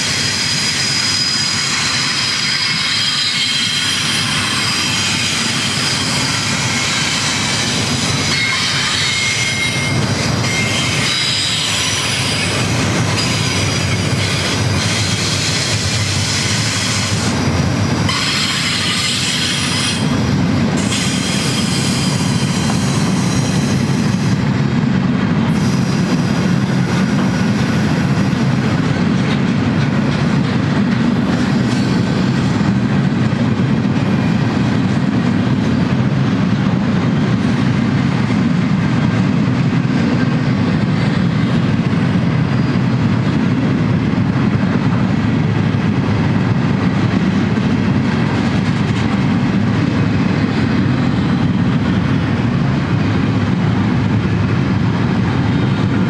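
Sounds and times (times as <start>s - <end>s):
steel wheel squeal: 0.0s - 17.3s, 18.0s - 20.2s, 20.8s - 24.4s
train wheels rumbling on rail: 0.0s - 56.0s.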